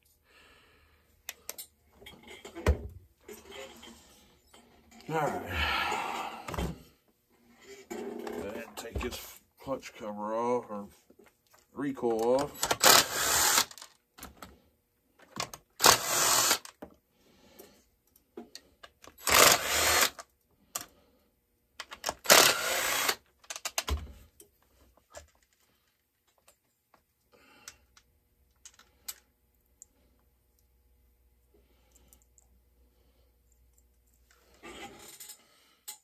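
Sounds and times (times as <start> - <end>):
cordless drill spinning out screws: 12.6 - 13.8, 15.7 - 16.8, 19.1 - 20.2, 22.0 - 23.2
clicks and knocks of parts handled: 21.8 - 22.3, 23.3 - 29.3, 33.5 - 36.0.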